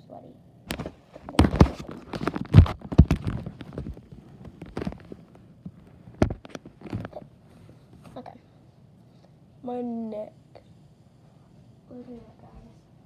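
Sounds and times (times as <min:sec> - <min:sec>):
phone being handled: 0:00.7 - 0:07.2.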